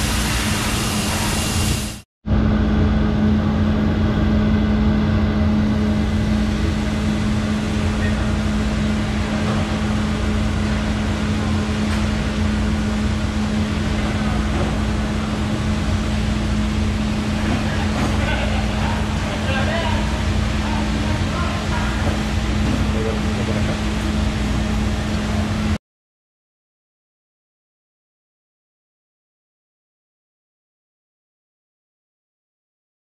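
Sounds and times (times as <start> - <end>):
coolant spray: 0.0 - 2.0
grinding machine humming: 2.3 - 25.8.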